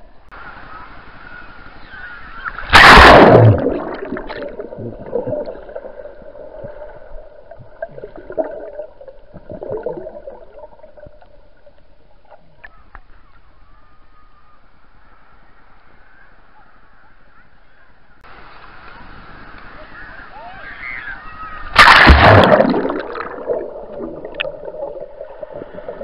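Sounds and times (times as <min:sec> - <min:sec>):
steady underwater hum: 0:00.0 - 0:26.0
loud splash: 0:02.6 - 0:07.2, 0:21.7 - 0:26.0
underwater gurgling and bubbling: 0:02.6 - 0:11.7, 0:21.8 - 0:26.0.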